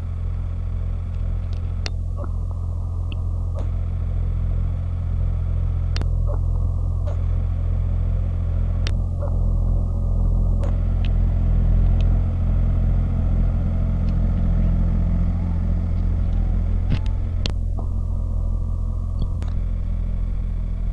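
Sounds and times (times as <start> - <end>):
tractor diesel engine drone: 0.0 - 20.9
sharp clicks: 5.9 - 7.5, 10.6 - 12.2, 15.9 - 17.9, 19.2 - 20.5.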